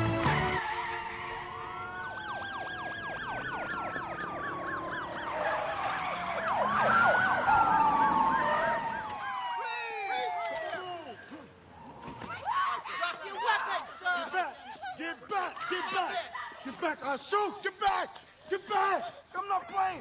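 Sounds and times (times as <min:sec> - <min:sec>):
music: 0:00.0 - 0:00.7
police sirens wailing: 0:00.0 - 0:12.2
rapid siren yelp: 0:00.5 - 0:11.3.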